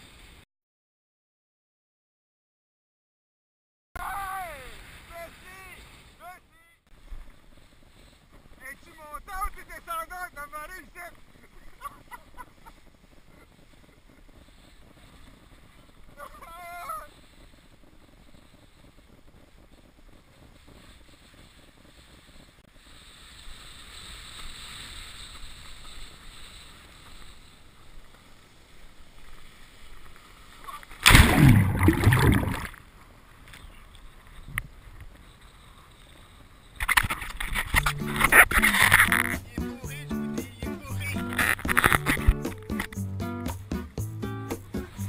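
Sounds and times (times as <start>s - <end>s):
water lapping: 22.9s - 39.3s
wind and water rushing: 27.9s - 33.0s
rushing gurgling water: 30.9s - 32.8s
loud splash: 31.0s - 32.8s.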